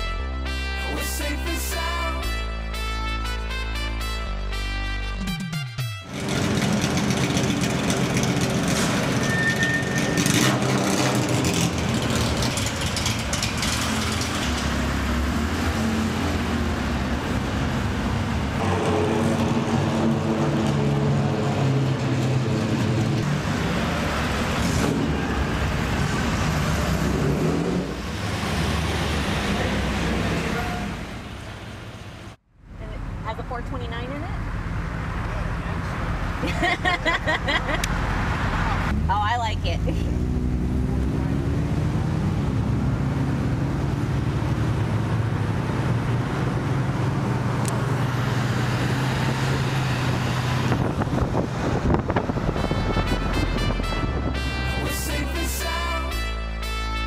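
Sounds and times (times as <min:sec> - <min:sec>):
traffic noise: 0:06.0 - 0:57.0
car engines driving past: 0:06.1 - 0:33.5, 0:34.2 - 0:54.4.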